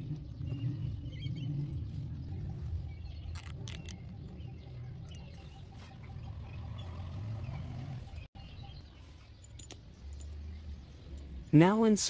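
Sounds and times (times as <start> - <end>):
low rumble: 0.0 - 9.2.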